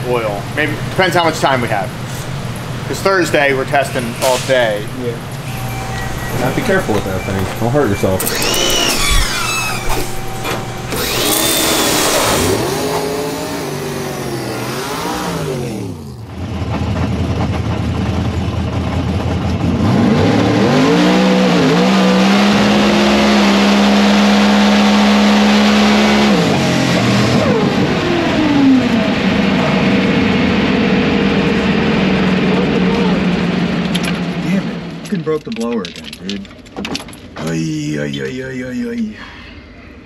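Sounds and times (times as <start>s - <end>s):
race car engine revving: 0.0s - 35.3s.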